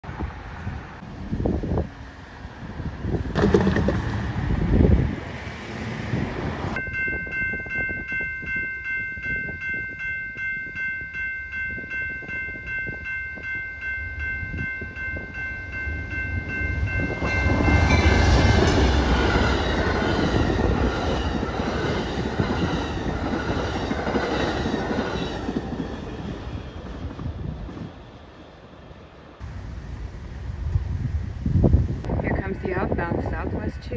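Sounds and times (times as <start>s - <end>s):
train passing at speed: 0.0s - 10.1s, 10.7s - 33.9s
railroad crossing bell ringing: 6.8s - 26.8s.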